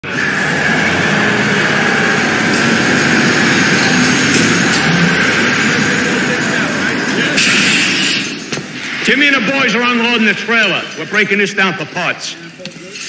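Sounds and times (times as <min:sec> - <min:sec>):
angle grinder on metal: 0:00.0 - 0:08.8.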